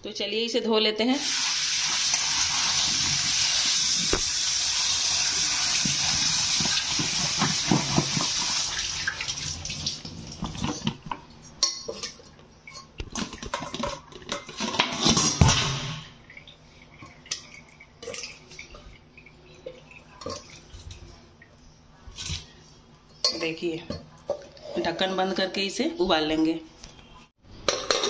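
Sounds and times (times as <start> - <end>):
tap water running into colander: 1.2 - 11.2
knocks and clinks of metal vessels: 27.6 - 28.0.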